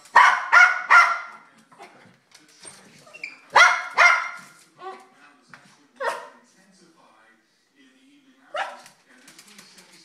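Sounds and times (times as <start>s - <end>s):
dog barking: 0.1s - 1.4s, 3.5s - 4.6s, 6.0s - 6.4s, 8.5s - 9.0s.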